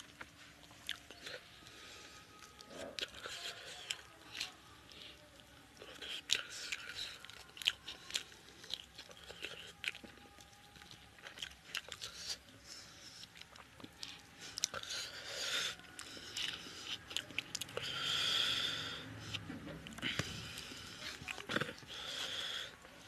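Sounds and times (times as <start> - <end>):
wet chewing and lip smacks: 0.0 - 1.8, 2.4 - 23.0.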